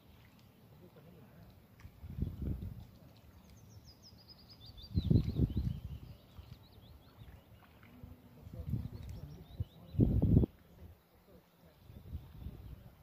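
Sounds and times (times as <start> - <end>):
songbird chirping: 0.0 - 13.0
wind buffeting microphone: 1.8 - 2.9, 4.8 - 6.4, 8.4 - 10.6, 11.9 - 13.0.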